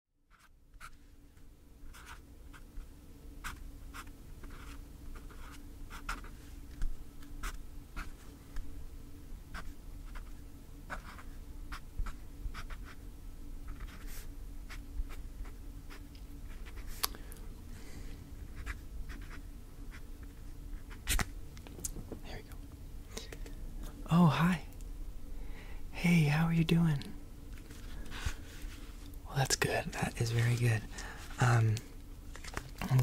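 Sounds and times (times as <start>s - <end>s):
faint steady hum: 0.2s - 33.0s
pen scratching on paper: 0.3s - 1.0s, 1.9s - 2.6s, 3.4s - 6.4s, 9.5s - 13.0s, 13.7s - 16.9s, 18.5s - 20.0s.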